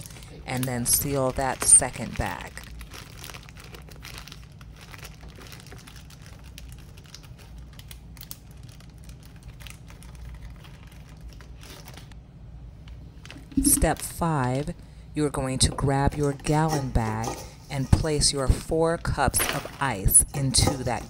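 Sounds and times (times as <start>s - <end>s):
plastic bag crinkling: 0.0s - 12.1s
low steady hum: 0.0s - 21.0s.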